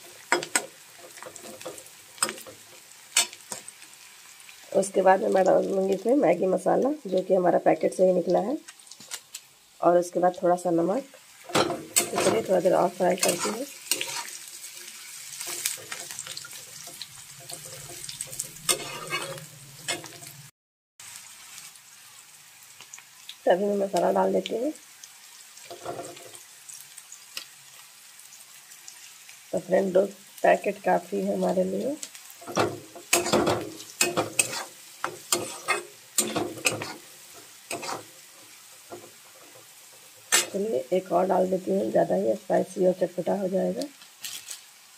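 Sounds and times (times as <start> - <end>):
vegetables sizzling in oil: 0.0 - 44.9
metal spatula scraping pan: 11.5 - 14.4, 15.4 - 20.4, 32.4 - 40.7.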